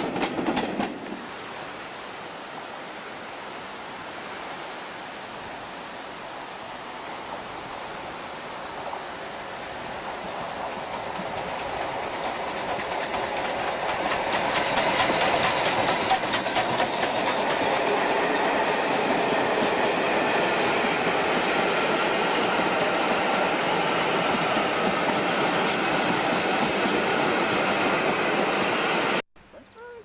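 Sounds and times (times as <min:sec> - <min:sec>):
wheels clicking on track: 0:00.0 - 0:01.2, 0:09.6 - 0:28.8
steam train passing: 0:00.0 - 0:02.2, 0:07.0 - 0:29.2.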